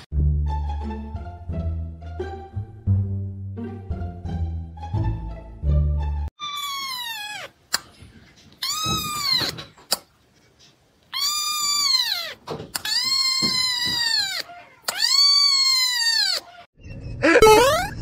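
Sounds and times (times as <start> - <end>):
kitten mewing: 6.4 - 7.9, 11.1 - 16.6.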